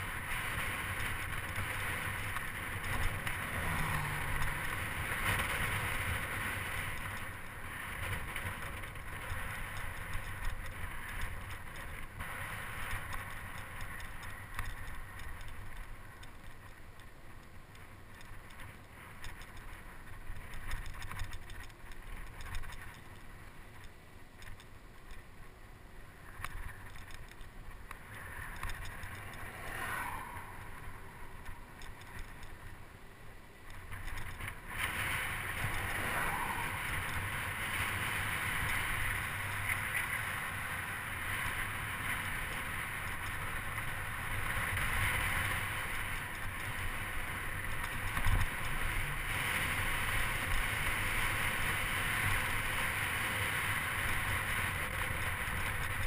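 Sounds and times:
wind rushing over microphone: 26.1s - 56.0s.

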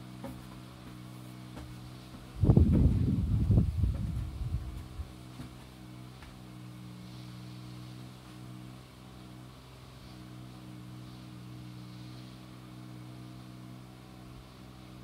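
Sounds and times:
low machine hum: 0.0s - 15.0s.

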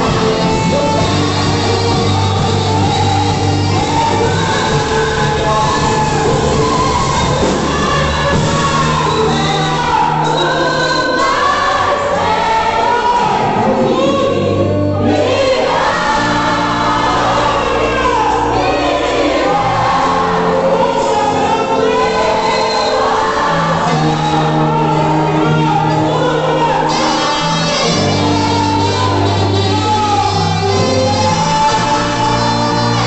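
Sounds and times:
band playing worship music: 0.0s - 33.0s
many voices singing: 0.0s - 33.0s
saxophone: 13.9s - 33.0s.

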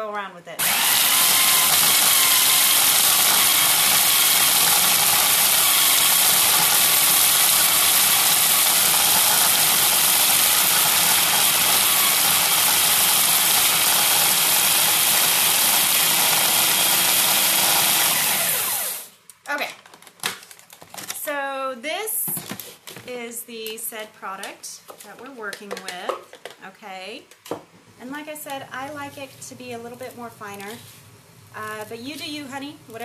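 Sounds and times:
food processor motor grinding: 0.6s - 19.1s.

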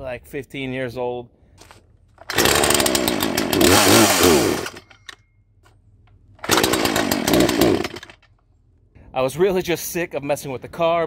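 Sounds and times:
chainsaw firing and revving: 2.2s - 4.9s, 6.4s - 8.2s.

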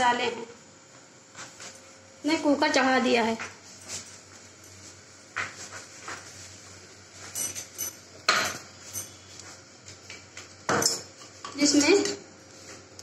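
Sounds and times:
metal spoon clinking on pot: 7.4s - 9.2s.

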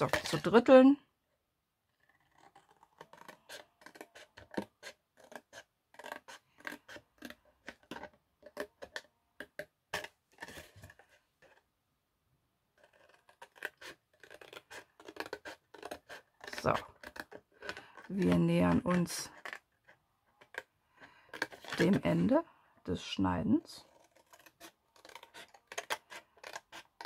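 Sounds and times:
scissors snipping cardstock: 2.0s - 11.0s, 12.8s - 20.6s, 23.9s - 27.0s.

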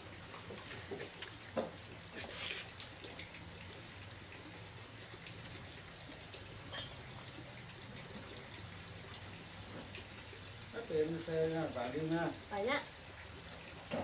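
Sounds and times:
metal clink: 6.7s - 7.1s
metal parts and tools ticking: 6.7s - 7.1s.

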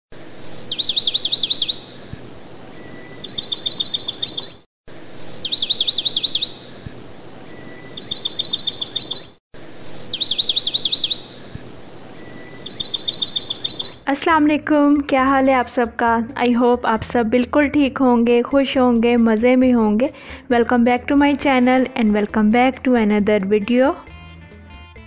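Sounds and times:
songbird singing: 0.2s - 14.3s.

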